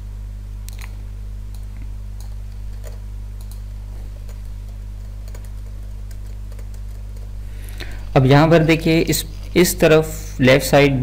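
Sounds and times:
steady low hum: 0.0s - 11.0s
computer keyboard and mouse clicks: 1.5s - 3.7s, 4.3s - 7.3s.

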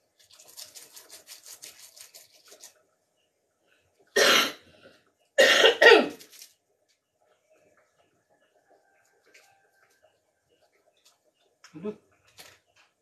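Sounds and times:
person coughing hard: 4.2s - 4.6s, 5.4s - 6.2s.

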